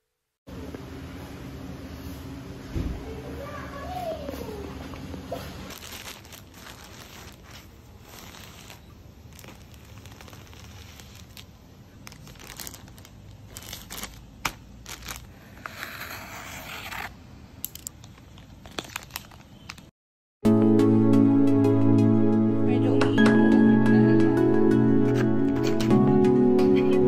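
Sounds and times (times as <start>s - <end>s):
plastic crinkling: 5.3s - 17.1s, 17.7s - 19.9s
plastic bags tearing open: 5.5s - 17.1s, 18.1s - 19.9s.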